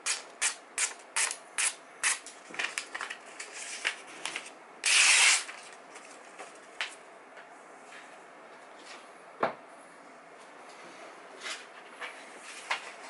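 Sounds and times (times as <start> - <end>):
paper rustling: 2.4 - 7.0
knife slicing paper: 4.8 - 5.7.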